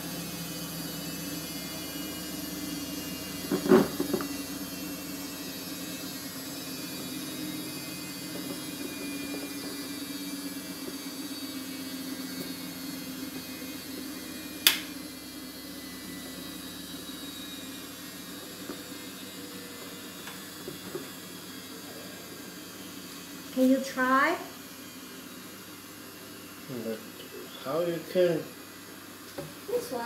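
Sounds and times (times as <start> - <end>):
sharp click of light mount: 14.6 - 14.9.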